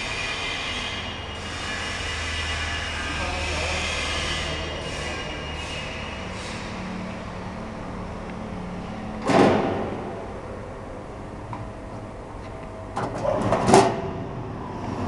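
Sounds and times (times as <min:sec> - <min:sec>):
loud knocks and rattles: 0:09.2 - 0:10.1.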